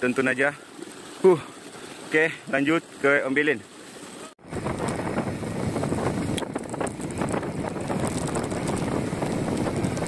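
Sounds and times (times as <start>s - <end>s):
wind buffeting microphone: 4.4s - 10.0s
crackles: 6.4s - 10.0s.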